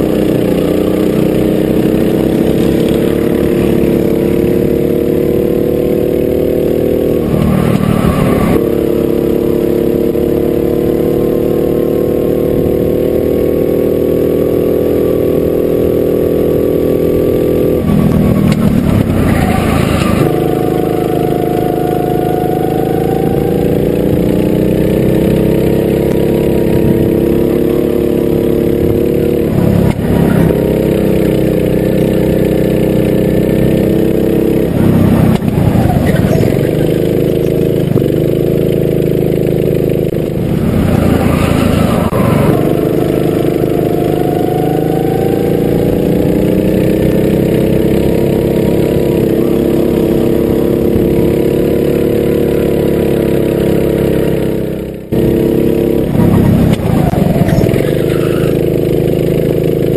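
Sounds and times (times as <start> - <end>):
kart engine revving: 0.0 - 59.9.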